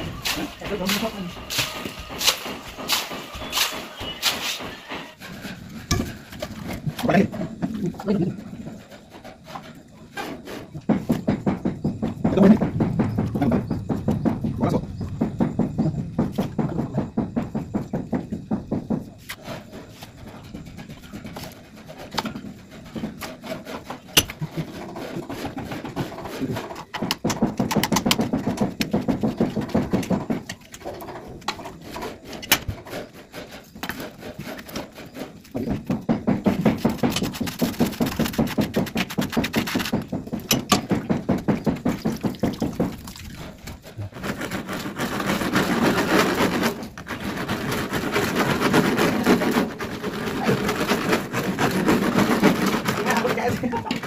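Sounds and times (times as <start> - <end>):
water and mud churning and splashing: 0.0 - 4.9, 36.5 - 54.0.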